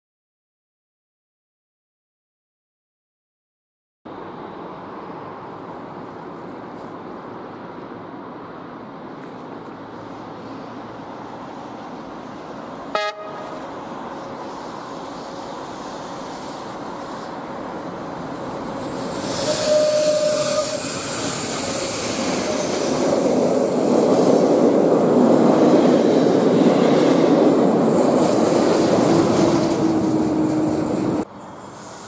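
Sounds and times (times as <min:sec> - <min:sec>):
train wheels rolling on rails: 0:04.8 - 0:32.0
wheels squealing: 0:18.4 - 0:23.3.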